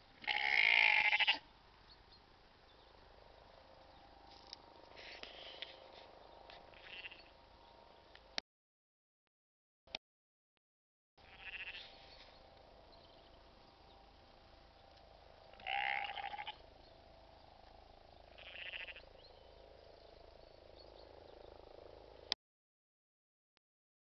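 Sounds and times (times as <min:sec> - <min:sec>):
sheep bleating: 0:00.2 - 0:01.4, 0:06.7 - 0:07.4, 0:11.2 - 0:12.0, 0:15.5 - 0:16.6, 0:18.3 - 0:19.1.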